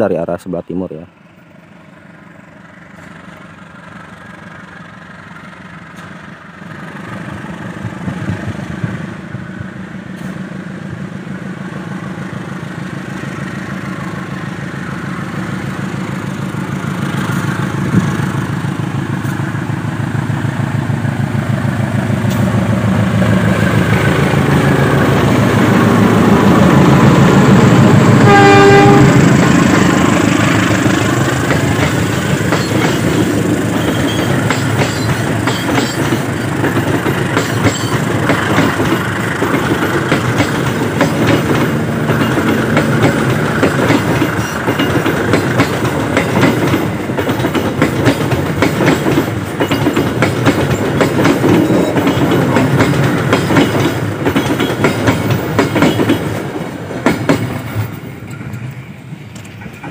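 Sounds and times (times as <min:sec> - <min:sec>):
train rumble: 0:00.1 - 0:59.9
train wheels clattering over rail joints: 0:29.4 - 0:59.9.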